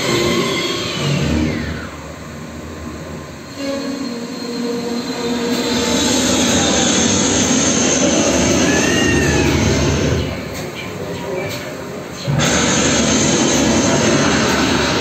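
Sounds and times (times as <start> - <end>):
jet aircraft noise: 0.0 - 15.0
rushing rumbling noise: 5.1 - 15.0
falling whistle: 8.6 - 10.3.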